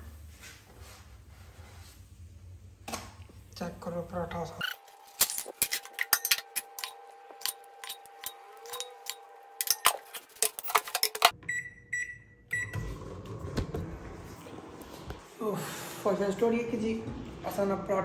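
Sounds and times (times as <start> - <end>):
plates and utensils clinking: 5.4 - 11.3
microwave oven beeps: 11.2 - 13.0.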